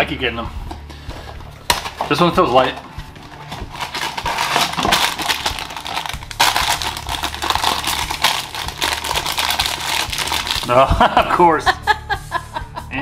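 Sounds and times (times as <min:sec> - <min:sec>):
cardboard box crinkling and tearing: 0:03.3 - 0:10.8.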